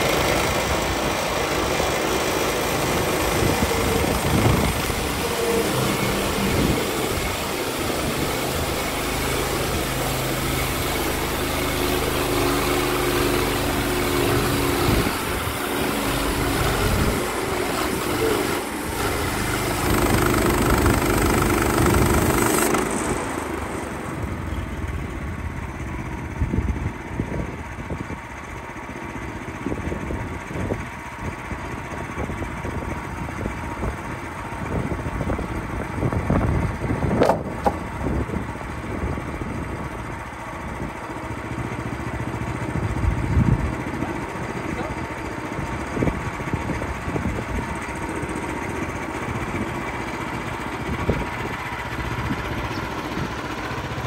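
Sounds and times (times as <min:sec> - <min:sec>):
band blade cutting log: 0:00.0 - 0:23.9, 0:37.2 - 0:37.8
sawmill petrol engine running: 0:00.0 - 0:54.0.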